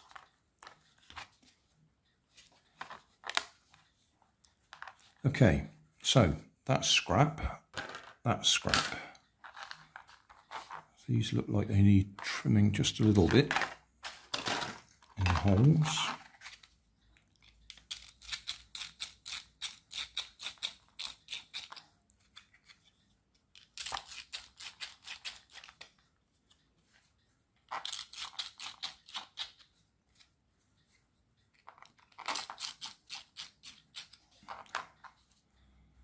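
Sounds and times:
knife blade scraping plastic: 0:32.0 - 0:34.8.

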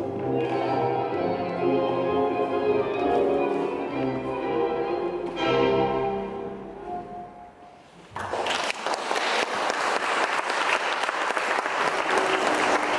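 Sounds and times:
tango music: 0:00.0 - 0:08.1, 0:11.7 - 0:12.9
audience applause: 0:08.1 - 0:12.9.

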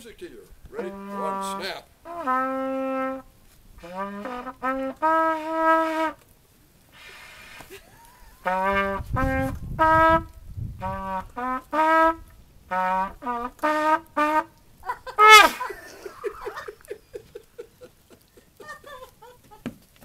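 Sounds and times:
brass horn playing bugle call: 0:00.8 - 0:06.2, 0:06.9 - 0:07.7, 0:08.3 - 0:15.8.

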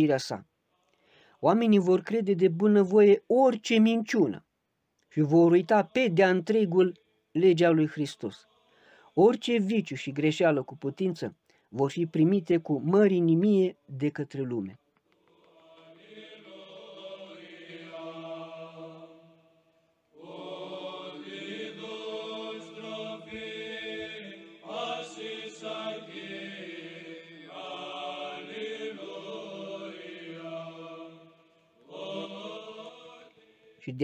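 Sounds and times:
choral chant: 0:07.8 - 0:09.3, 0:15.1 - 0:34.0.

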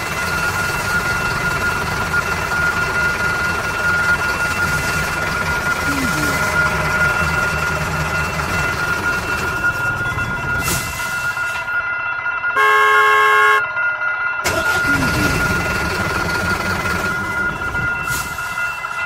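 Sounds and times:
horn blast: 0:12.6 - 0:13.7.

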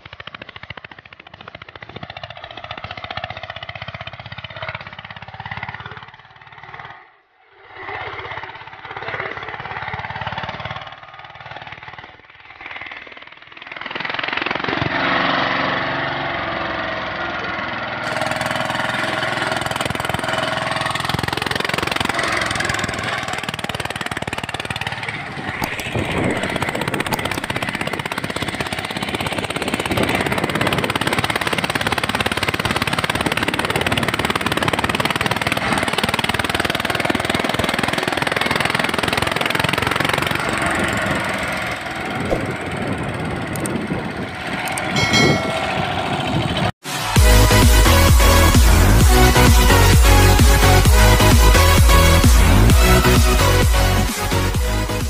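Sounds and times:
small diesel engine knocking: 0:00.0 - 0:07.0, 0:08.0 - 0:54.0
tines dragging through dry soil: 0:40.2 - 0:47.2.

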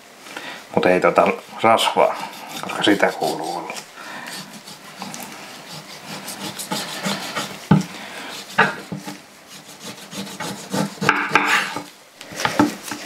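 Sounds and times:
knife sawing through pork skin: 0:01.5 - 0:11.9.

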